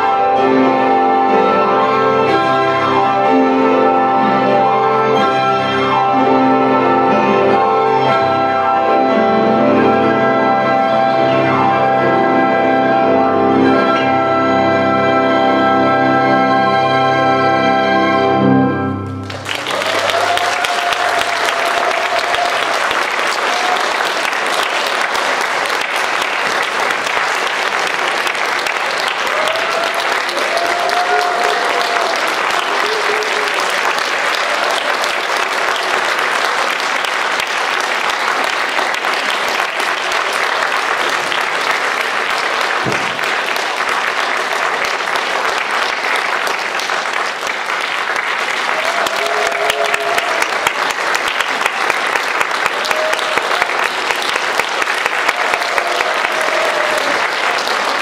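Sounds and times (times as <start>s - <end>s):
orchestra chord: 0.0s - 19.6s
audience applauding: 19.0s - 58.0s.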